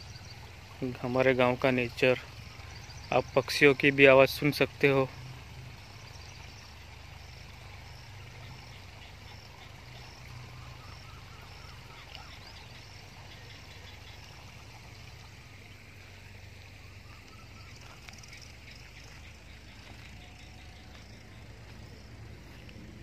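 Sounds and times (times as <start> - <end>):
low even hum: 0.0 - 23.0
small animal calls: 5.9 - 15.7, 16.6 - 22.8.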